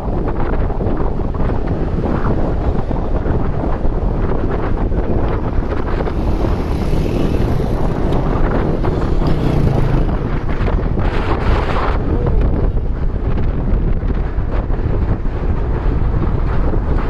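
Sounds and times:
wind buffeting microphone: 0:00.0 - 0:17.0
motorcycle engine passing: 0:04.6 - 0:12.6
fast river rushing: 0:05.3 - 0:13.0.

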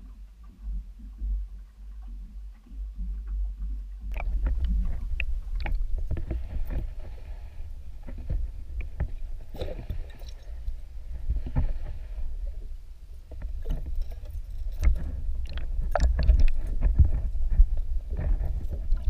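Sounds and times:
underwater rumble of moving water: 0:00.0 - 0:19.0.

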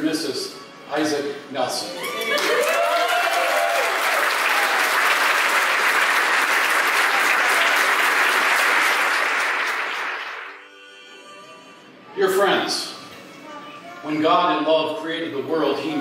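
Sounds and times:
crowd applauding: 0:02.0 - 0:10.6.

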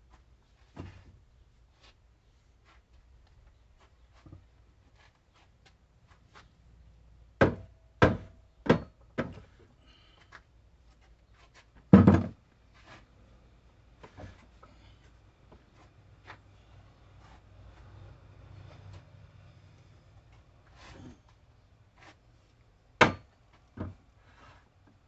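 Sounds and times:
sharp knocks on wood: 0:07.4 - 0:09.4, 0:23.0 - 0:24.0.

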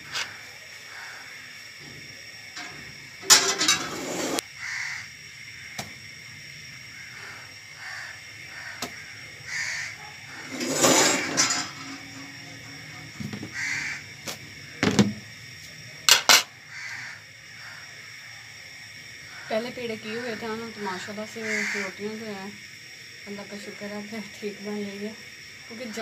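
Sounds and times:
crows cawing: 0:00.9 - 0:01.4, 0:04.6 - 0:05.1, 0:06.9 - 0:10.1, 0:13.5 - 0:14.1, 0:16.6 - 0:18.0, 0:21.4 - 0:22.0
cookware knocks and clatter: 0:02.6 - 0:04.0, 0:16.1 - 0:16.5.

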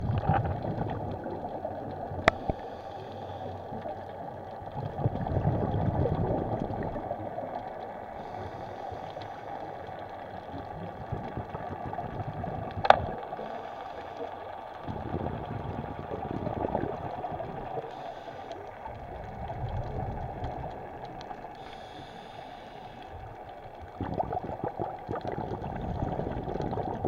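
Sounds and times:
faint steady crackle: 0:00.0 - 0:27.0
muffled underwater water noise: 0:00.0 - 0:27.0.

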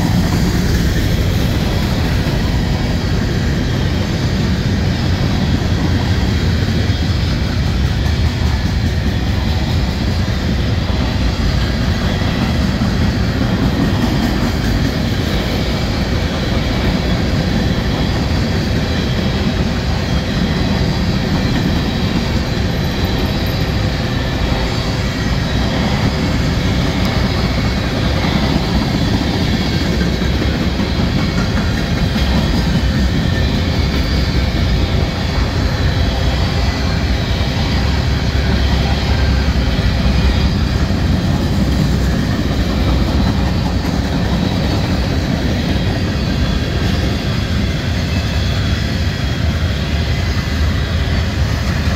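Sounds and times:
freight cars rolling on rails: 0:00.0 - 0:51.9.

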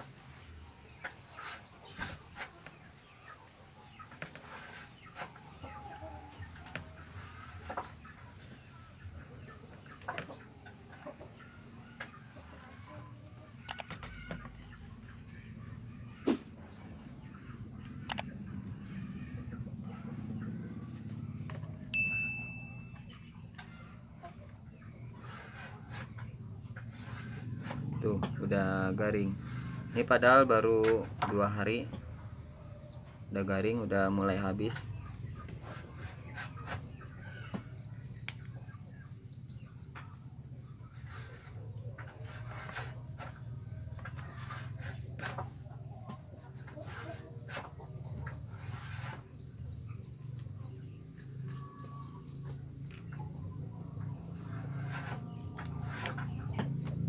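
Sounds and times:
crickets chirping: 0:00.0 - 0:04.0, 0:04.6 - 0:06.6, 0:19.2 - 0:21.5, 0:36.0 - 0:40.3, 0:42.3 - 0:43.7, 0:48.0 - 0:53.0.

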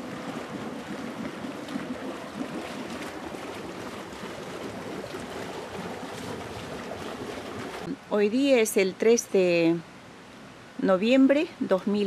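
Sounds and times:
jacuzzi jets bubbling: 0:00.0 - 0:08.8.

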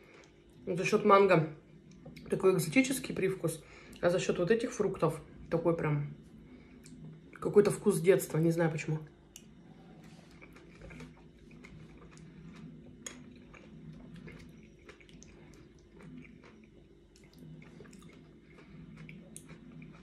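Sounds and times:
chewing wet fruit: 0:06.1 - 0:08.4, 0:09.0 - 0:20.0.

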